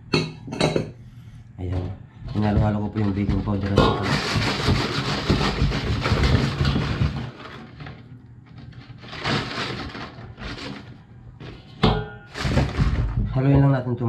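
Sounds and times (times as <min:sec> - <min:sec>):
wire whisk beating in metal bowl: 0:02.3 - 0:06.8.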